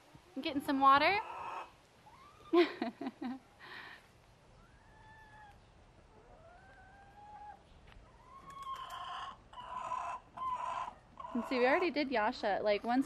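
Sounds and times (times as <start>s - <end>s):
hens whining calls: 1.2s - 2.8s, 4.5s - 12.0s.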